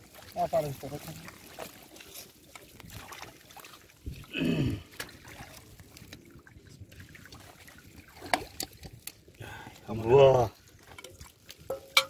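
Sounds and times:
hands squelching in wet mud: 0.0s - 6.2s.

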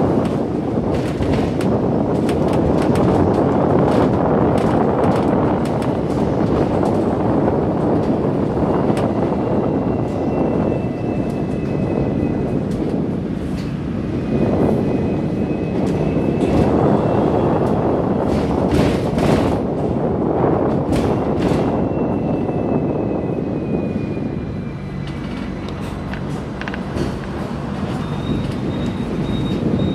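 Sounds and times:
steel wheels rumbling on rail: 0.0s - 29.9s.

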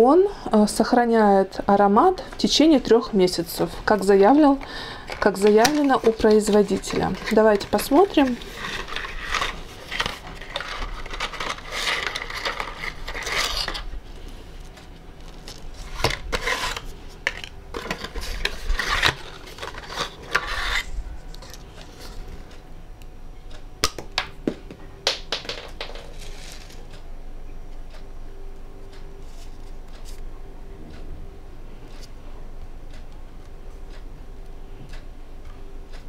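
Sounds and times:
cardboard packaging rustling: 5.1s - 14.4s, 15.2s - 22.3s, 25.8s - 26.9s.

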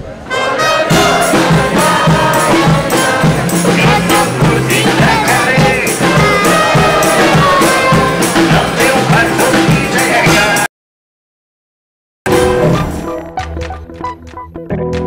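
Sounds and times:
acoustic guitars strummed: 0.3s - 10.7s
voices singing along: 0.3s - 10.7s
percussion beat: 0.9s - 10.7s, 12.3s - 15.0s.

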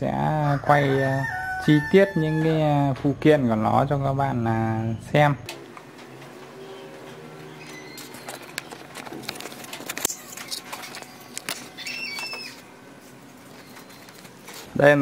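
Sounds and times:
short high squeak: 11.8s - 12.7s.

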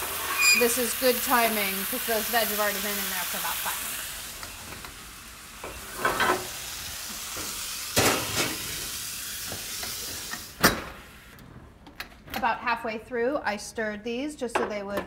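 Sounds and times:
meat sizzling in a skillet: 0.0s - 11.3s.

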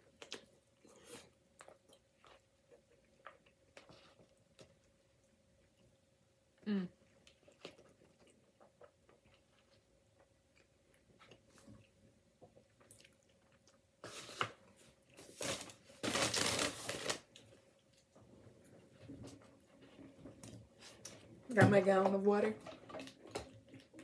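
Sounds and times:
person chewing: 0.0s - 6.0s, 7.0s - 14.4s
paper bag rustling: 15.2s - 17.2s.

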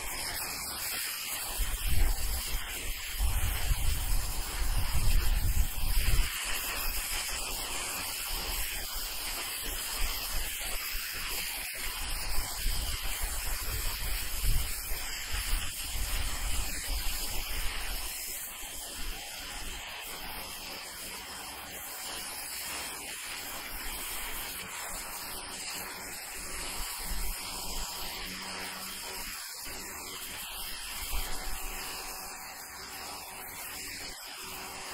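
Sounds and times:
pressure washer jet hissing: 0.0s - 34.9s.

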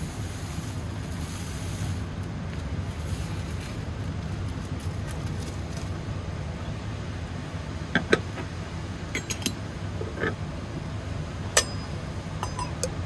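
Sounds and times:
steady low rumble: 0.0s - 13.0s
metal coffee pot parts clinking: 9.2s - 10.4s, 11.6s - 13.0s.

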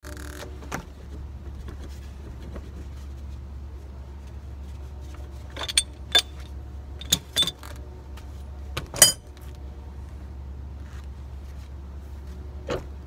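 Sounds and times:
metallic clinks of tools: 5.6s - 6.4s, 7.0s - 7.6s, 9.0s - 9.2s.

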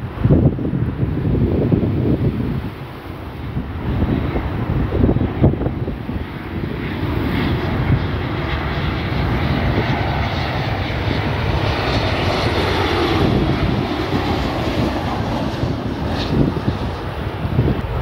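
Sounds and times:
airliner jet engines rushing: 0.0s - 18.0s.

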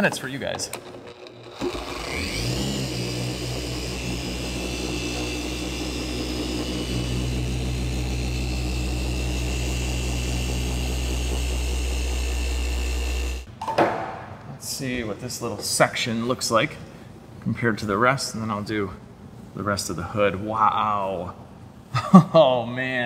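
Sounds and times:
polisher motor whining: 0.8s - 13.5s.

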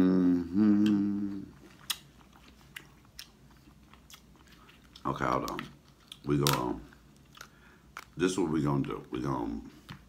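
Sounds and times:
man humming mmm: 0.0s - 1.7s
person chewing: 0.5s - 8.2s
mouth clicks and smacks: 0.7s - 8.1s.

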